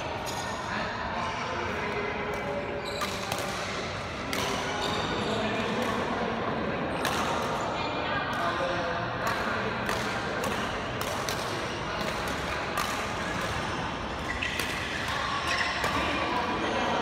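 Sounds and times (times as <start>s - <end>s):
rackets striking shuttlecocks: 2.2s - 4.8s, 7.0s - 7.6s, 8.3s - 16.6s.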